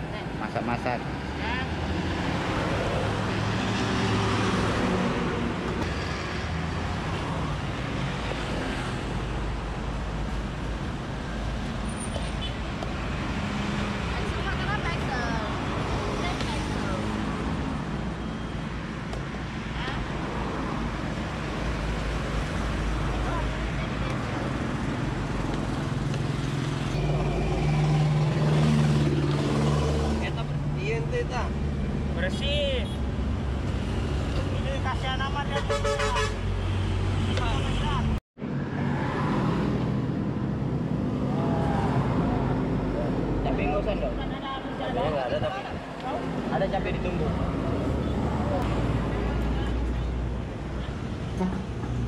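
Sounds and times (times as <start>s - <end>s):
road traffic: 0.0s - 52.0s
passing vehicle engine: 24.4s - 32.3s, 36.3s - 49.6s.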